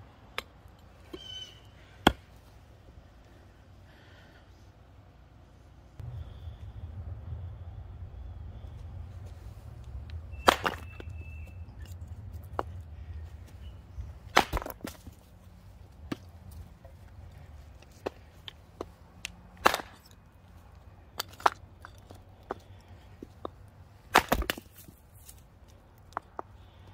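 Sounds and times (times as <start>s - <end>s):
hatchet chopping wood: 2.0s - 2.3s, 10.4s - 12.7s, 14.3s - 15.1s, 16.0s - 16.3s, 19.6s - 20.1s, 24.1s - 24.9s
split wood pieces clattering: 10.4s - 11.2s, 14.3s - 15.3s, 21.1s - 23.4s.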